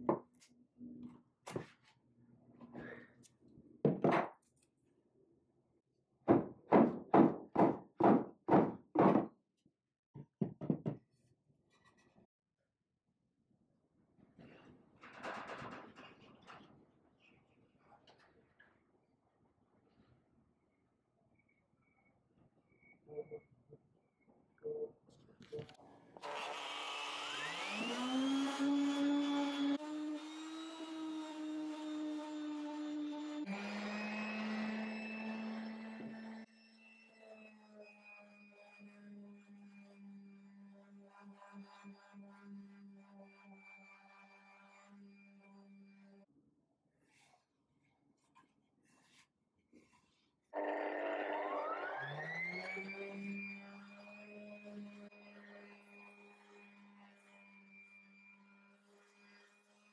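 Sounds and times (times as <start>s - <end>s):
rubber mallet striking wood: 6.3s - 9.3s
electric sander whine: 50.6s - 55.4s.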